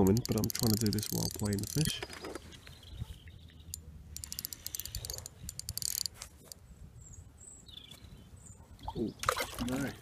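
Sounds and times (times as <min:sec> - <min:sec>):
fishing reel clicking: 0:00.0 - 0:02.1, 0:03.7 - 0:06.2.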